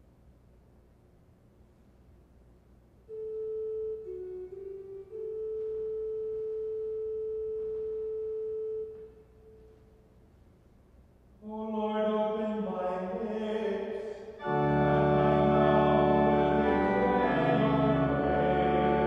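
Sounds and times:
pipe organ flute stop: 3.1s - 9.8s, 14.4s - 19.0s.

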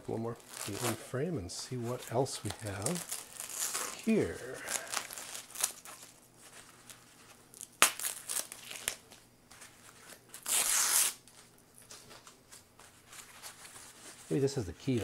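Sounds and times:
crackles and rustling: 0.0s - 1.0s, 1.7s - 15.0s
tape peeling off foam: 0.4s - 1.0s, 1.9s - 11.4s
tape tearing rip: 0.4s - 1.0s, 2.4s - 6.1s, 7.5s - 9.2s, 10.0s - 11.3s.

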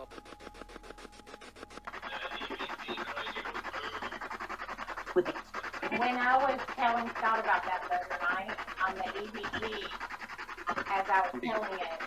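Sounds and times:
fluttering static hiss: 0.0s - 6.9s.

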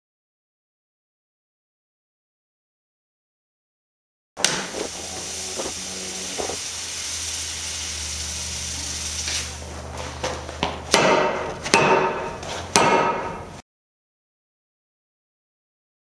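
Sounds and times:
steady low hum: 4.6s - 13.6s
loud ringing metal strikes: 10.9s - 13.6s.

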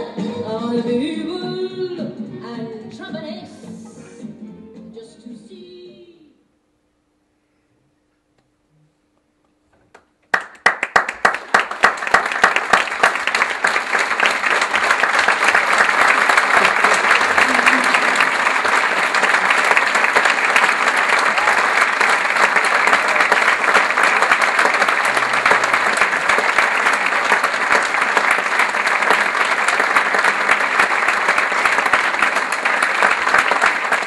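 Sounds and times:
audience applauding: 10.3s - 34.0s.

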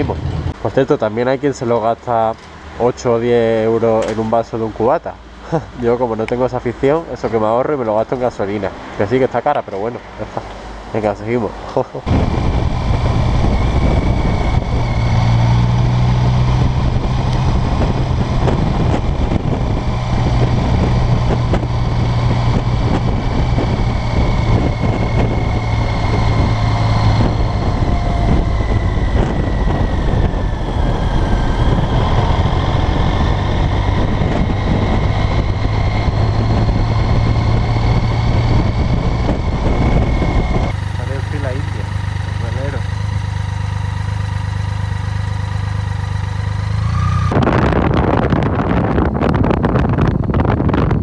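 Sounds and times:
wind and road rush: 0.0s - 51.0s
motorcycle engine running: 12.1s - 51.0s.

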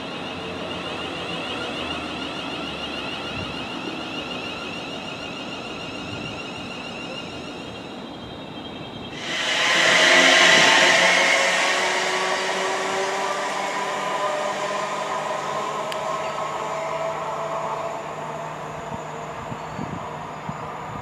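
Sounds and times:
electric train whine: 0.0s - 21.0s
loud rushing noise: 9.2s - 17.5s.

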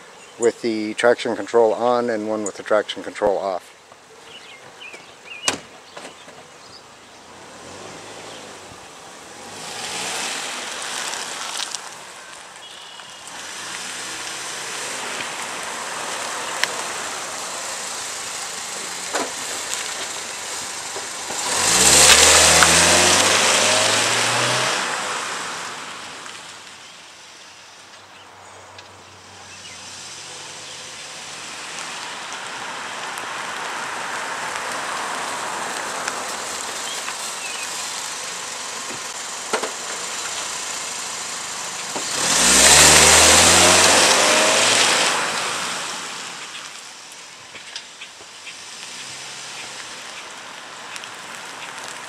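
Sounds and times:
car engine accelerating hard: 7.0s - 12.0s, 13.3s - 26.7s, 29.2s - 47.2s, 48.5s - 52.0s.

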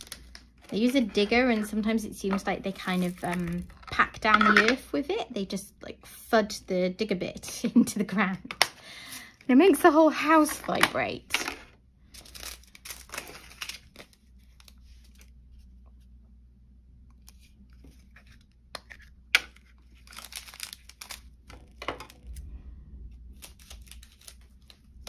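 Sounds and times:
plastic bags crinkling: 12.1s - 14.8s, 19.5s - 22.3s.

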